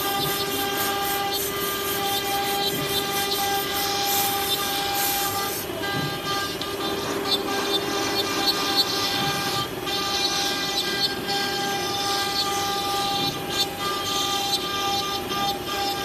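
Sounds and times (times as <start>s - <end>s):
hissing cutting noise: 0.0s - 8.9s
router spindle whine: 0.0s - 16.0s.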